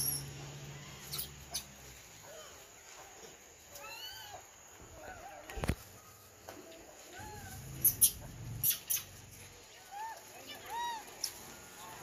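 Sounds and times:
monkeys squeaky calls: 1.0 - 1.8, 7.2 - 11.5.

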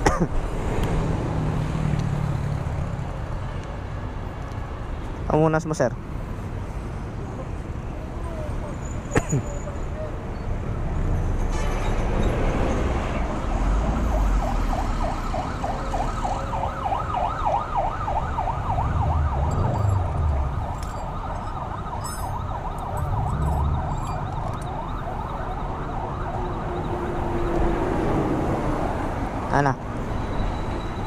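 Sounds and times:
street traffic rumble: 0.0 - 31.0
siren yelping: 14.1 - 27.6.

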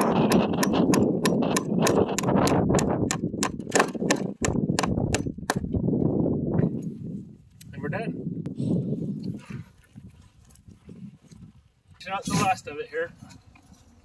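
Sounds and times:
hammer tapping staples into wood: 0.0 - 5.6.

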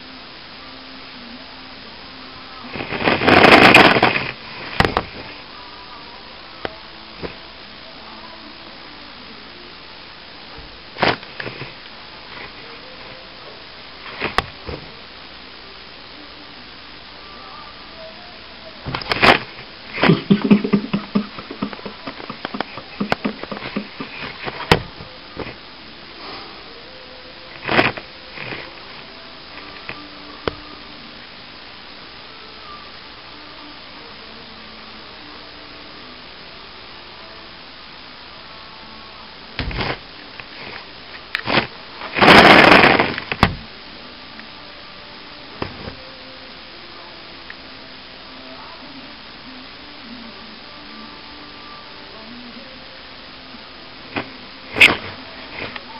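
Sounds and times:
steady low hiss: 0.0 - 55.9
scraping rustle: 2.7 - 5.4.

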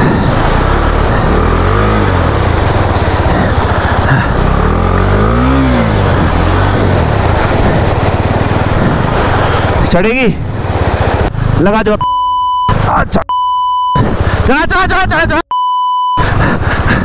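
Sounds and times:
fast-flowing water rushing: 0.0 - 11.6
motorcycle engine revving: 0.0 - 11.8.

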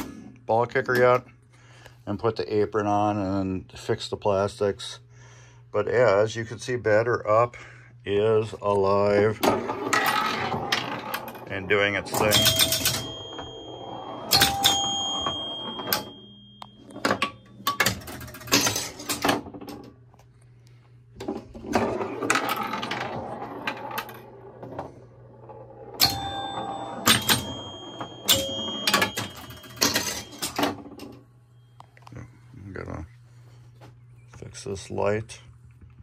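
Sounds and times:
steady low hum: 0.0 - 36.0
pinball machine mechanical clacking: 9.2 - 19.9, 21.2 - 31.2
ringing scoring chimes: 12.1 - 17.7, 25.7 - 30.7.

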